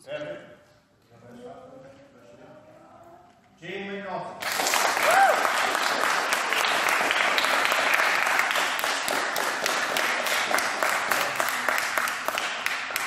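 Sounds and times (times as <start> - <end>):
people clapping: 4.4 - 13.0.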